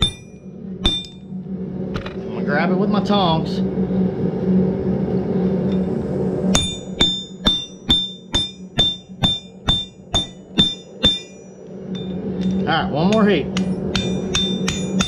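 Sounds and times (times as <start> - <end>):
hammer ringing on steel: 0.0 - 1.2, 6.6 - 15.0.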